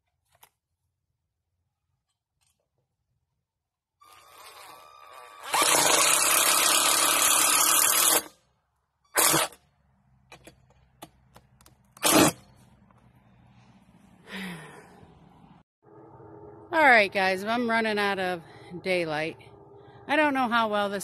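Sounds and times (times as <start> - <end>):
cordless drill driving a screw: 4.0 - 8.3, 9.2 - 9.5, 12.0 - 12.4.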